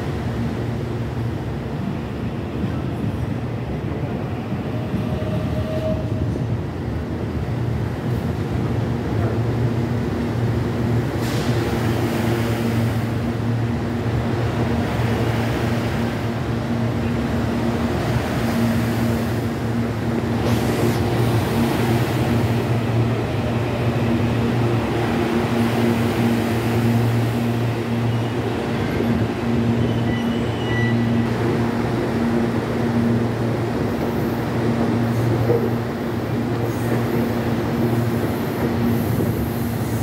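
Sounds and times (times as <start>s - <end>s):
electric train hum and rumble: 0.0s - 40.0s.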